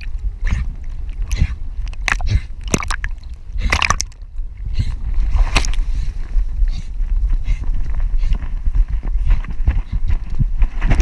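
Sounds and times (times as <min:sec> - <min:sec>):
low rumble: 0:00.0 - 0:11.0
splash into water: 0:02.0 - 0:04.2.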